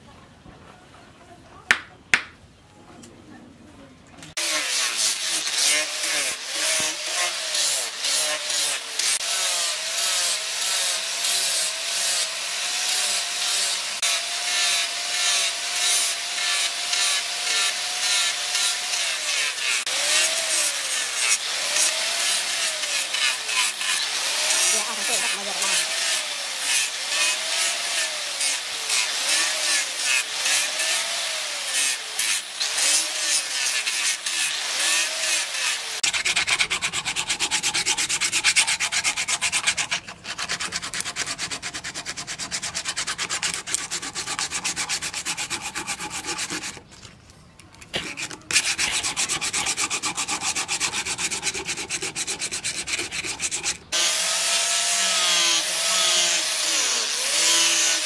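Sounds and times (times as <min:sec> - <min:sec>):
angle grinder running: 0:04.4 - 0:40.0, 0:48.0 - 0:58.0
sandpaper rubbing wood: 0:04.4 - 0:46.9, 0:47.9 - 0:58.0.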